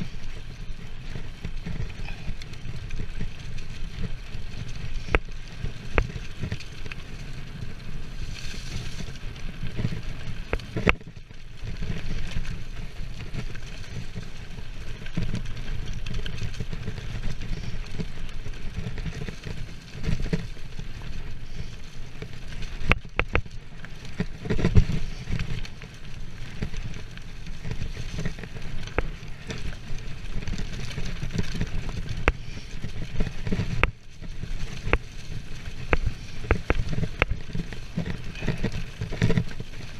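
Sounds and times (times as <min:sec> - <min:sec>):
bike tyres rumbling on dirt: 0:00.0 - 0:39.9
bike knocks and rattles: 0:22.2 - 0:39.9.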